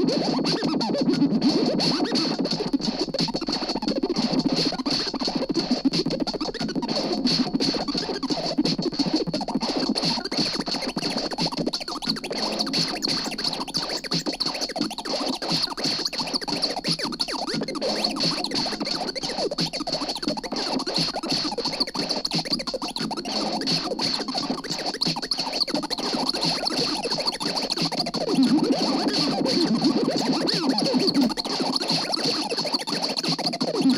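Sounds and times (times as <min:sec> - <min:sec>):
crackly noise music: 0:00.0 - 0:33.9.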